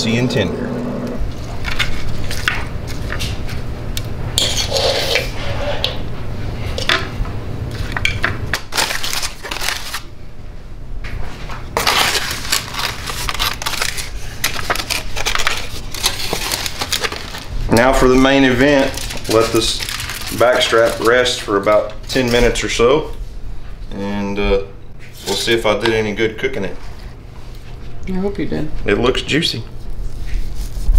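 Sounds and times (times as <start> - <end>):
steady low hum: 0.0 - 30.9
aluminium foil crinkling: 1.3 - 3.6, 8.6 - 10.1, 11.8 - 22.4.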